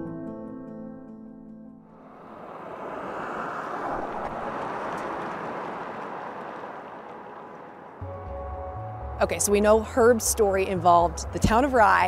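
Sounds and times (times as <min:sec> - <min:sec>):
vehicle passing by: 0:01.9 - 0:08.2.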